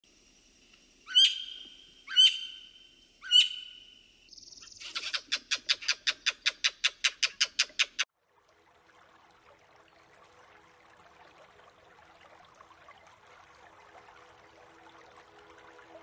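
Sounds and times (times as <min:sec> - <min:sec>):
bird calls: 0:01.1 - 0:08.0.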